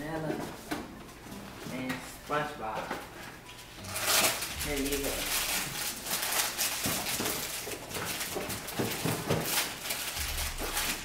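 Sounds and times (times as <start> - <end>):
rustling: 3.3 - 11.0.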